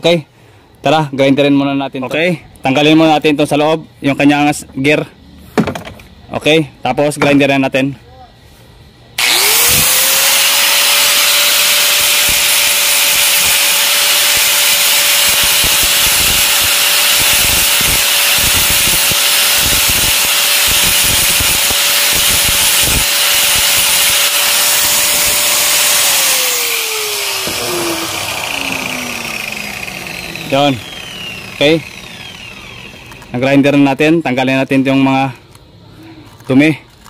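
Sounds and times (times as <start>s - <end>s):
angle grinder whining: 9.2s - 33.8s.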